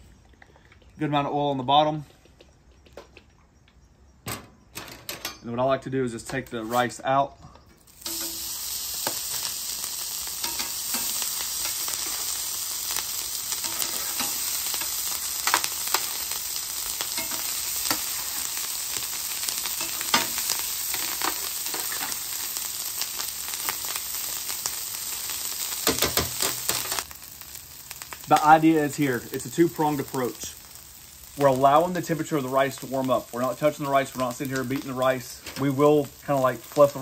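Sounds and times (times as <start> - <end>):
rice sizzling in hot oil: 7.8 - 37.0
metal spatula clinking and scraping: 17.2 - 18.0.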